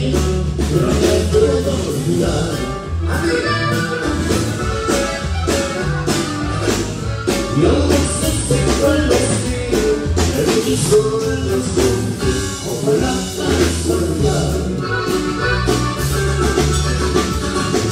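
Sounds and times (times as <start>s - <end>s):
person singing: 0.0s - 4.6s, 7.4s - 15.2s
accordion: 0.0s - 17.9s
live band playing: 0.0s - 17.9s.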